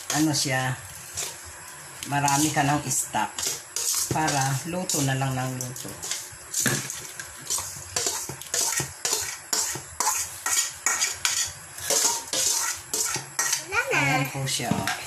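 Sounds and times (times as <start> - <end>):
utensil scraping metal bowl: 2.2 - 13.7.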